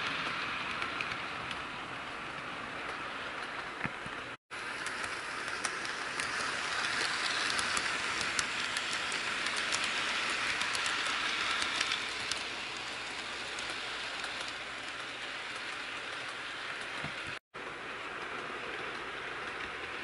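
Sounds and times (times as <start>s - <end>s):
rapid small clicks: 0.0s - 1.7s, 2.3s - 17.4s
model train rolling hiss: 4.6s - 20.0s.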